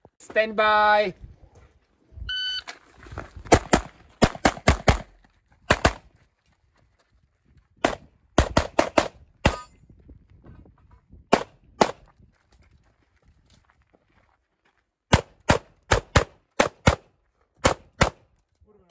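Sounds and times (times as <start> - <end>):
pistol shots: 3.5 - 5.1, 15.1 - 18.2.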